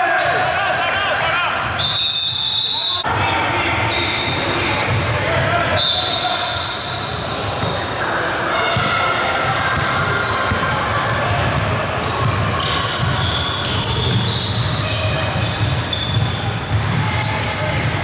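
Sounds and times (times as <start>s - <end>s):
players' voices: 0.0s - 18.0s
shoe squeaks: 3.6s - 8.2s, 11.9s - 18.0s
basketball bouncing on court: 7.1s - 7.9s, 8.6s - 18.0s.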